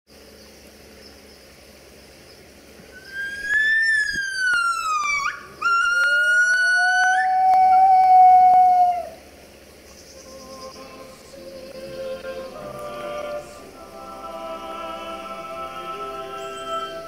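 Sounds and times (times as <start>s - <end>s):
gibbons calling: 3.0s - 9.2s.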